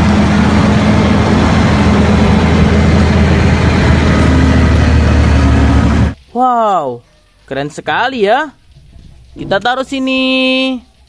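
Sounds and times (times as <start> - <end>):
truck diesel engine driving past: 0.0 - 6.2.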